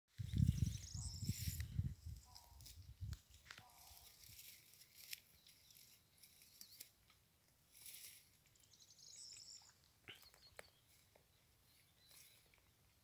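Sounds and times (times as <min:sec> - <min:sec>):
rustling in dry grass: 0:00.1 - 0:13.0
high chirping: 0:00.2 - 0:02.6.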